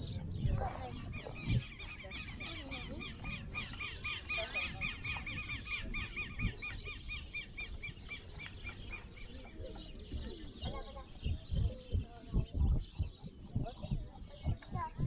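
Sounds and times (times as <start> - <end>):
low thumps: 9.5 - 15.0.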